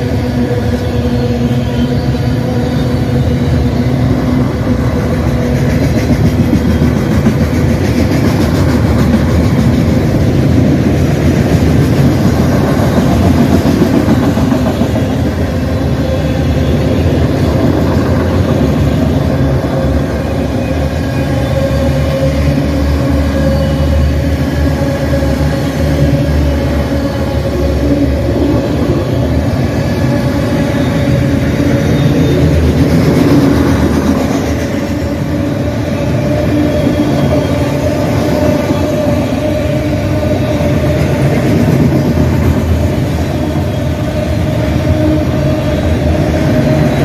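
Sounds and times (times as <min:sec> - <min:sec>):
freight train rumbling on rails: 0:00.0 - 0:47.0.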